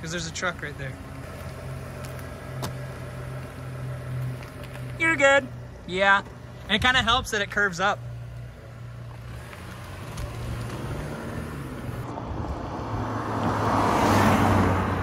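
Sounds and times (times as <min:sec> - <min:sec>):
car engine pulling away: 0:00.0 - 0:15.0
car passing by: 0:09.3 - 0:15.0.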